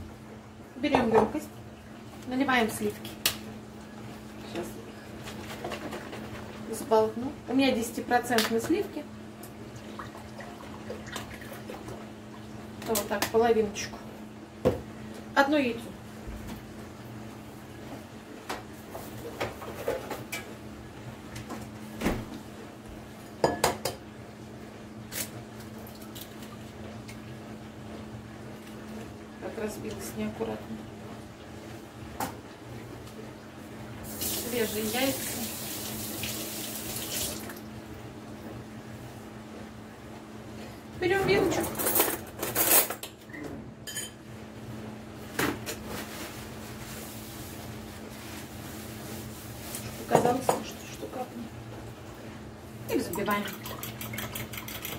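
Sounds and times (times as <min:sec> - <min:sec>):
kitchen items clicking and knocking: 0:53.1 - 0:54.9.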